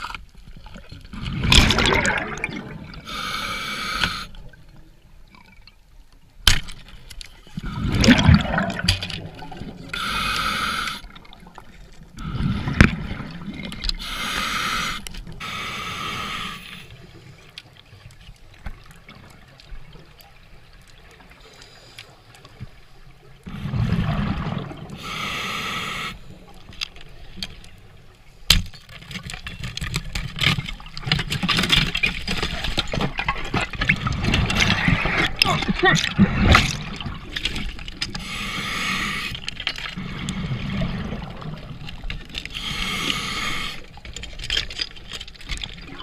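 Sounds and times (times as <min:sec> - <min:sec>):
exhaled bubbles rumbling: 0:00.7 - 0:03.1, 0:07.5 - 0:10.0, 0:11.0 - 0:13.9, 0:23.4 - 0:25.0, 0:32.5 - 0:38.2, 0:40.0 - 0:42.4
regulator inhalation hiss: 0:03.1 - 0:04.4, 0:10.0 - 0:11.0, 0:14.0 - 0:16.9, 0:25.0 - 0:26.3, 0:38.2 - 0:39.4, 0:42.5 - 0:43.8.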